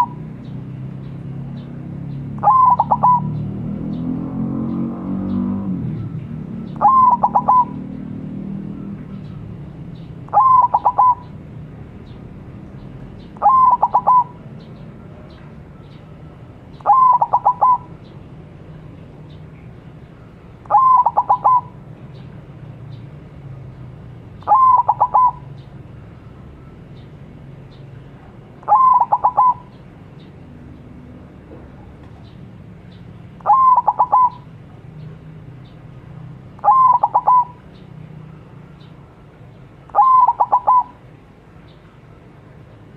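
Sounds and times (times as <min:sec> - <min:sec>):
dove cooing: 0:00.0 - 0:00.2, 0:02.4 - 0:03.5, 0:06.6 - 0:07.9, 0:10.3 - 0:11.4, 0:13.4 - 0:14.5, 0:16.8 - 0:18.1, 0:20.6 - 0:21.8, 0:24.4 - 0:25.6, 0:28.6 - 0:29.8, 0:33.4 - 0:34.5, 0:36.6 - 0:37.7, 0:39.9 - 0:41.0.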